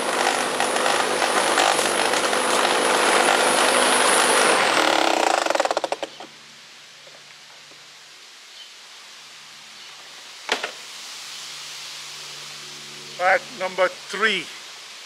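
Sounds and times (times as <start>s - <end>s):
lawn mower engine running: 0.0s - 6.2s
faint outdoor background: 0.0s - 15.0s.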